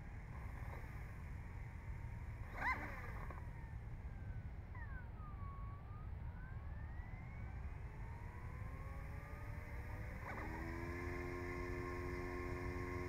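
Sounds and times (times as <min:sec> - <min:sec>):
electric motor whining: 0:09.6 - 0:13.0.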